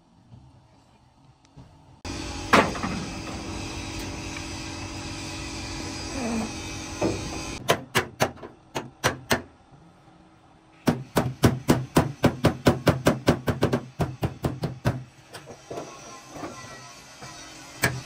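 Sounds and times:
hammer beating sheet metal: 10.8 - 15.0.

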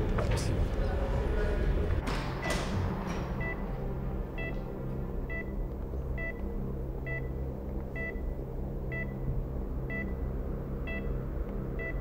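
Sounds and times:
low steady hum: 0.0 - 12.0
patient monitor beeping: 11.8 - 12.0.

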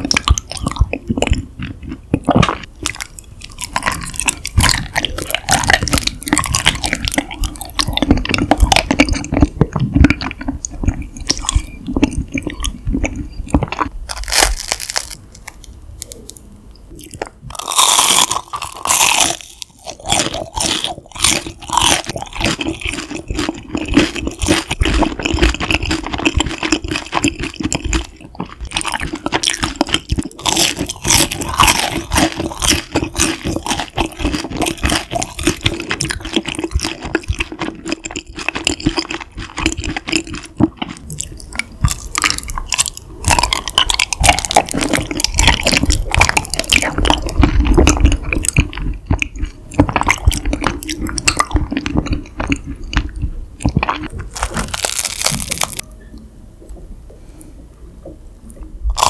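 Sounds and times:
sticky wet chewing: 0.0 - 16.4, 17.0 - 55.8
crunching bites of crisp snack: 13.6 - 16.4, 17.0 - 53.1, 53.7 - 55.8.

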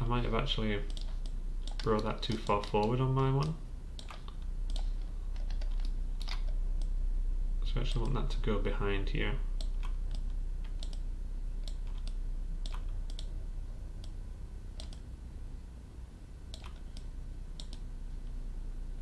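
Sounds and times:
low steady hum: 0.0 - 19.0
mouse and keyboard clicks: 0.9 - 6.6, 14.8 - 15.0, 16.5 - 17.8.

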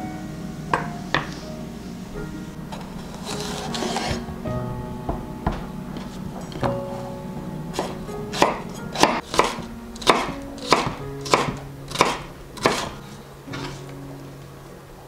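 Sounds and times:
knife chopping on wooden board: 7.8 - 12.9.

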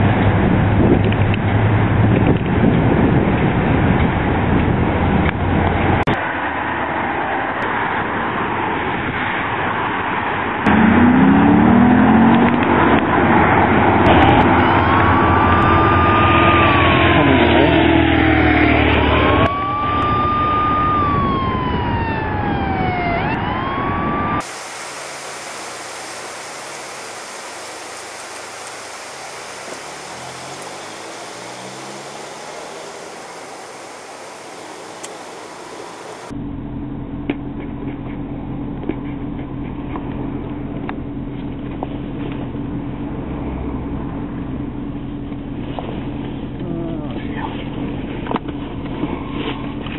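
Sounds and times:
road and wind noise: 0.0 - 49.9
police siren wailing: 14.1 - 36.4.

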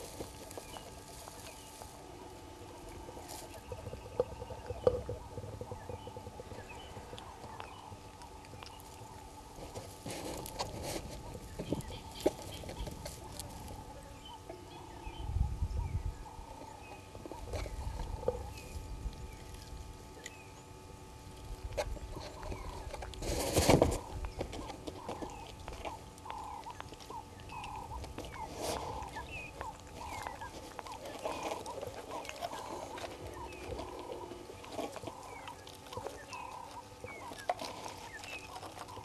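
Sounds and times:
low rumble: 0.0 - 9.6
faint bird chirps: 26.2 - 39.0.

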